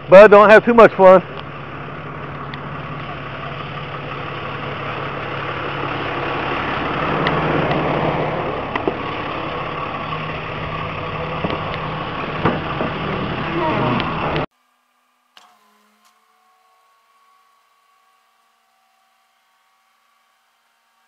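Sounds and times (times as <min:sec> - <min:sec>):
truck engine idling: 0:00.0 - 0:14.5.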